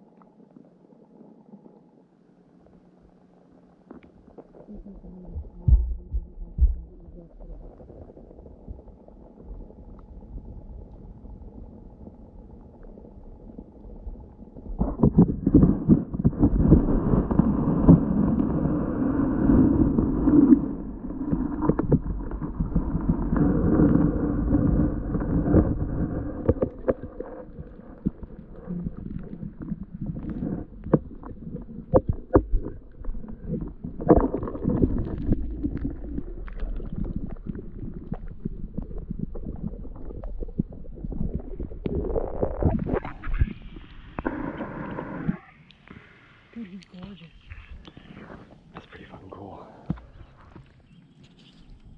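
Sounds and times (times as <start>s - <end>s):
muffled underwater water rumbling: 0.0s - 51.9s
underwater knocks and clicks: 4.8s - 10.1s, 14.7s - 18.8s, 19.5s - 45.4s.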